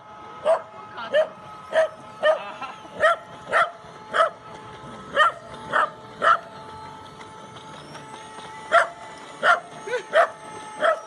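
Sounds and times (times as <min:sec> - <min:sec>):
small dog barking: 0:03.0 - 0:04.3, 0:05.2 - 0:06.4, 0:10.2 - 0:11.0.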